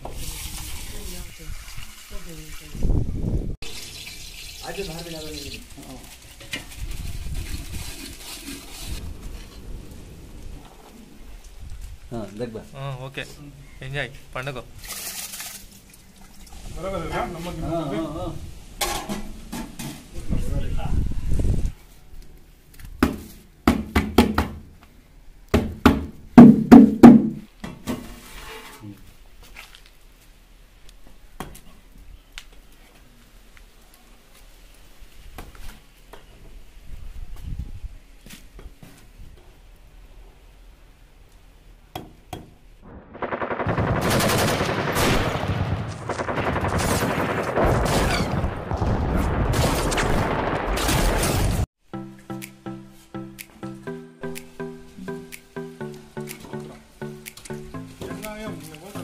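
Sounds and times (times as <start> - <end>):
machine-gun fire: 42.9 - 51.6.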